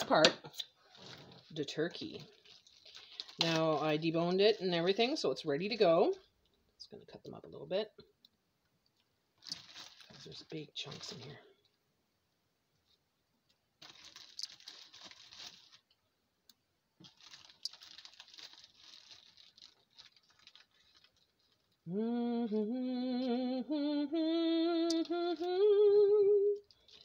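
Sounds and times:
woman humming: 21.9s - 26.7s.

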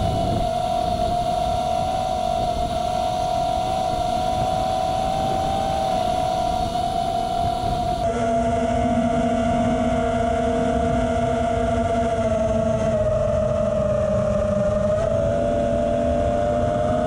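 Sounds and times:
drone motors whining: 0.0s - 17.0s
wind rumble on microphone: 0.0s - 17.0s.

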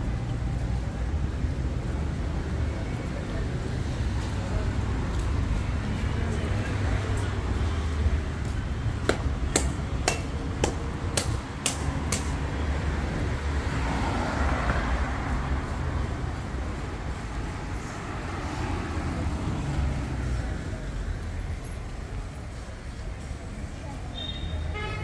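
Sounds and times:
traffic rumble: 0.0s - 25.0s
sharp knocks: 9.0s - 12.4s.

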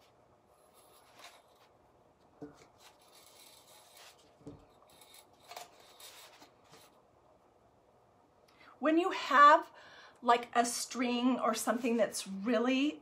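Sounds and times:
twine rubbing and rustling: 2.4s - 7.0s.

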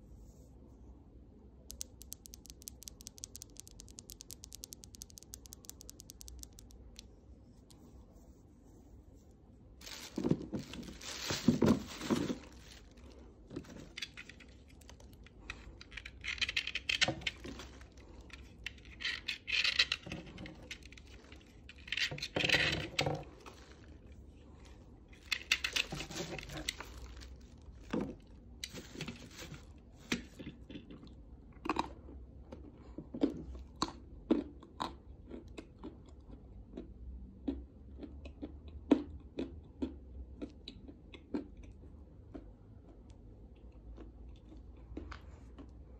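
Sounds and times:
dry clay crunching and crumbling: 9.8s - 31.1s.

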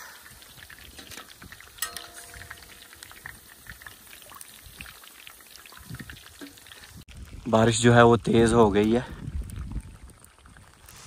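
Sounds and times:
deep-frying in hot oil: 0.0s - 11.0s
metal clink: 1.8s - 3.1s.

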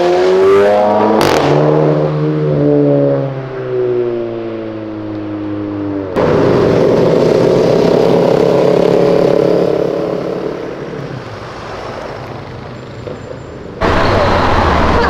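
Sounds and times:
motorcycle engines passing: 5.6s - 15.0s.

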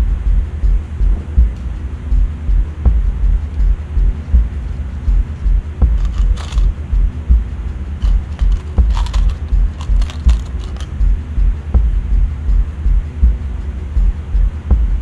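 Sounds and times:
loud uneven low rumble: 0.0s - 15.0s
bolts clinking in plastic cup: 6.0s - 6.7s, 8.0s - 11.0s.

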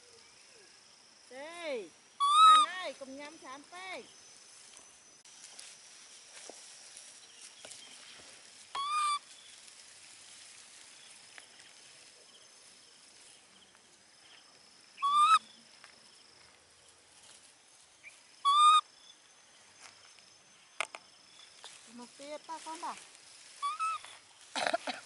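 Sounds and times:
baby monkey high-pitched calls: 2.2s - 2.9s, 8.7s - 9.3s, 15.0s - 15.4s, 18.4s - 18.9s, 23.6s - 24.2s.

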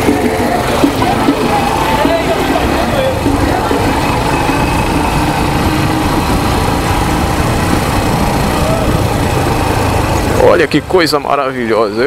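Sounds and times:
small motorcycle engine: 0.0s - 11.4s
wind on microphone: 3.2s - 10.4s.

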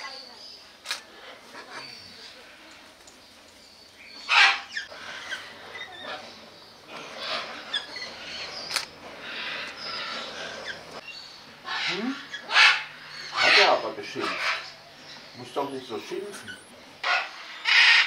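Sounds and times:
parrots squawking: 4.2s - 15.0s, 16.4s - 18.0s.

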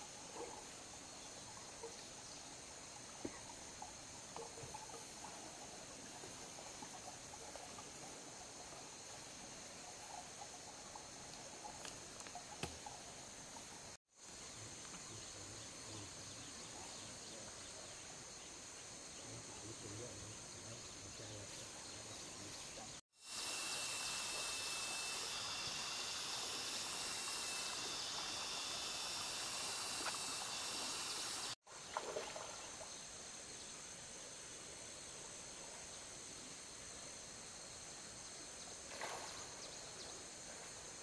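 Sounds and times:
insect chorus drone: 0.0s - 41.0s.

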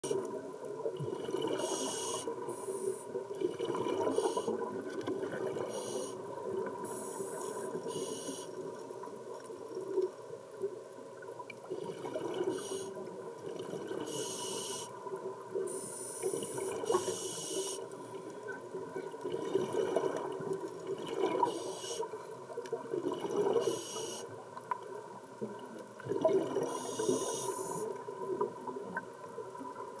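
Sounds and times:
faint steady hum: 0.0s - 30.0s
regulator hissing inhalations: 1.6s - 3.2s, 5.7s - 6.2s, 6.8s - 8.6s, 14.1s - 15.0s, 15.7s - 17.8s, 21.5s - 22.1s, 23.6s - 24.3s, 26.7s - 27.9s.

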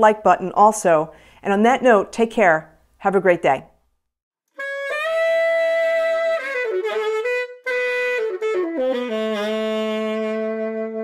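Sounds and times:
solo saxophone: 4.5s - 11.0s.

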